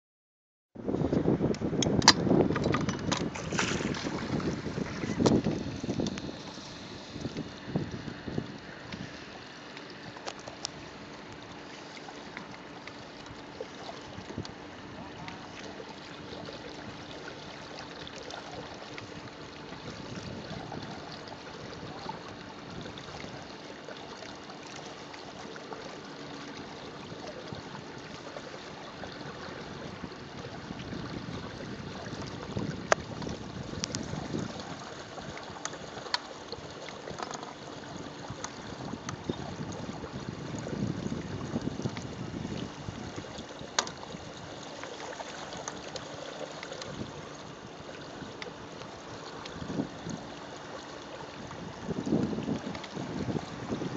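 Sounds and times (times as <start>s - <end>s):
wind on microphone: 0.8s - 9.2s, 18.0s - 23.6s, 26.7s - 37.2s, 37.8s - 50.5s, 51.2s - 53.9s
faint steady hum: 0.8s - 53.9s
water sloshing against boat hull: 0.8s - 53.9s.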